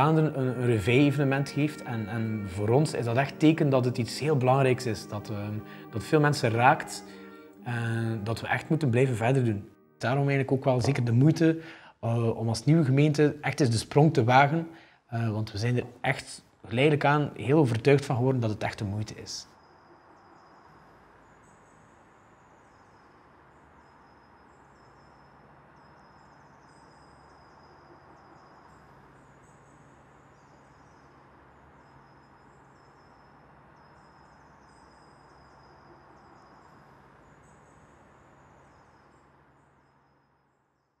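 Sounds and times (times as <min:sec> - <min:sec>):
high chirps: 0:00.0 - 0:11.8
soft hiss: 0:00.0 - 0:40.4.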